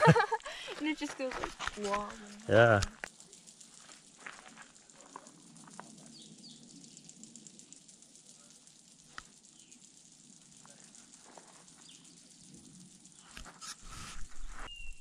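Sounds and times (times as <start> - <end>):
insects clicking: 0.0 - 15.0
short high chirps: 13.6 - 15.0.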